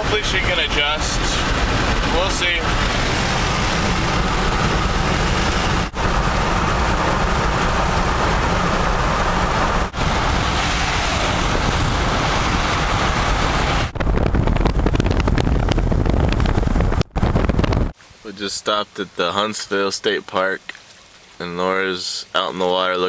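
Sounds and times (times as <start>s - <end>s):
car road and wind noise: 0.0s - 18.0s
wind buffeting microphone: 0.0s - 18.0s.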